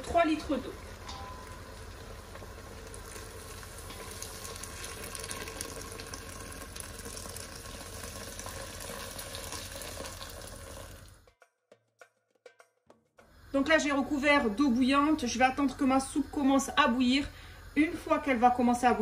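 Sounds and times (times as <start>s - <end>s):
sauce sizzling and bubbling: 0.0s - 11.3s
water pouring into a pot: 0.1s - 11.3s.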